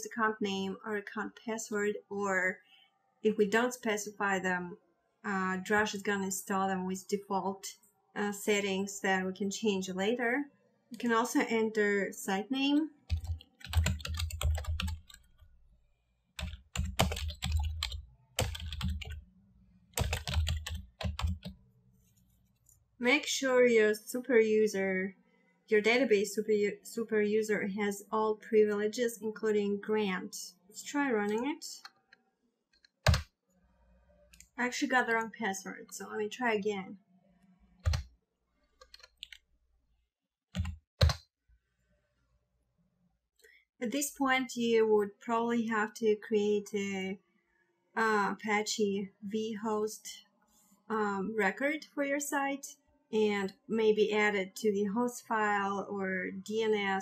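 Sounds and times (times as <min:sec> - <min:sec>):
computer keyboard typing: 0:13.1 - 0:15.4, 0:16.4 - 0:19.2, 0:20.0 - 0:21.6, 0:32.8 - 0:33.3, 0:37.8 - 0:38.1, 0:38.8 - 0:39.4, 0:40.6 - 0:41.2.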